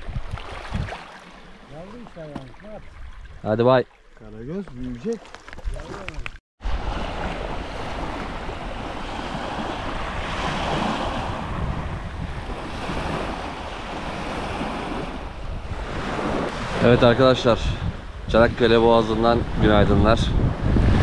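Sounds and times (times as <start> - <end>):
wind buffeting microphone: 0.0 - 1.0, 5.5 - 21.0.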